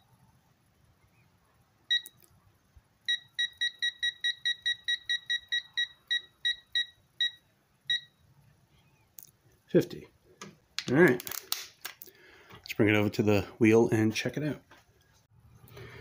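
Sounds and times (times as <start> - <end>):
short electronic beeps: 3.1 - 8.2.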